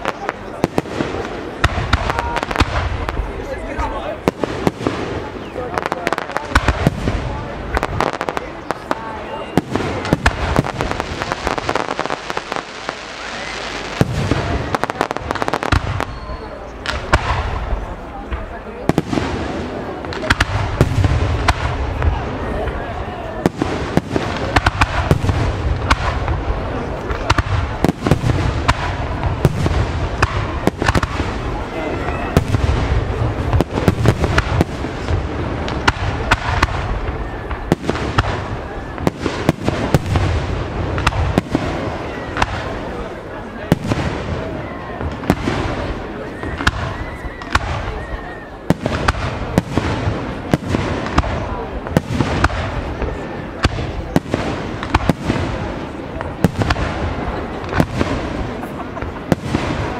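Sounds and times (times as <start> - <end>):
fireworks bursting and crackling: 0.0 - 59.9.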